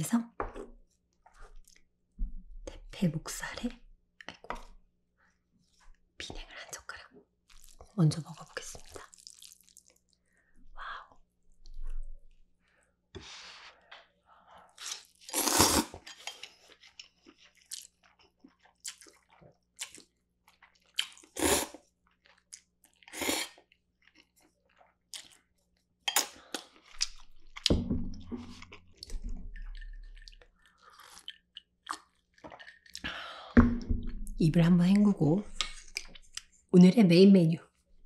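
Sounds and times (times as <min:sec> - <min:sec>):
chewing: 0:08.7 - 0:10.2, 0:16.0 - 0:27.7, 0:28.4 - 0:33.2
noodle slurping: 0:14.8 - 0:16.0.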